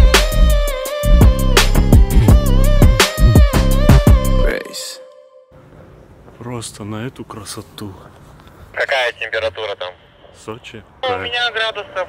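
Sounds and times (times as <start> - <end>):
hip-hop beat music: 0.0 - 5.4.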